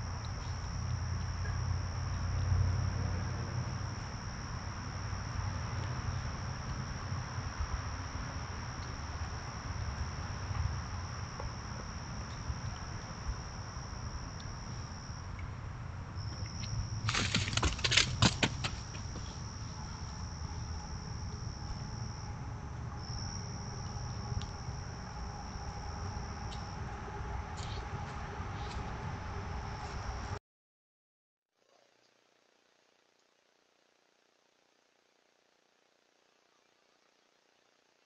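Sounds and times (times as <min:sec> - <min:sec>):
night insects trilling: 0:00.0 - 0:30.4
deer hooves rustling leaf litter: 0:17.0 - 0:20.2.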